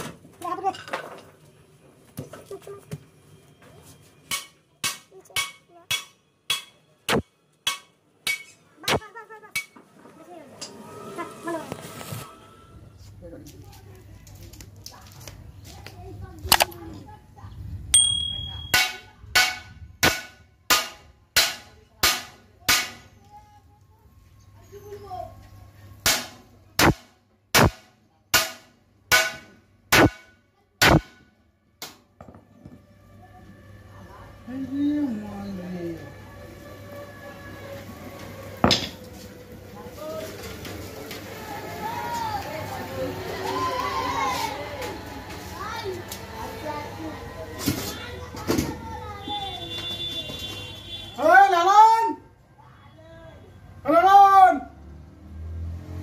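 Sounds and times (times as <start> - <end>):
hammer striking metal: 4.3 - 9.8, 18.0 - 23.1, 26.0 - 32.0.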